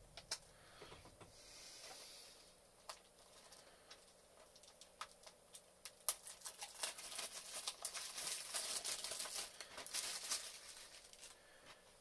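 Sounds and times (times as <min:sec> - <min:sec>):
plastic wrapping crinkling and tearing: 0:02.9 - 0:11.4.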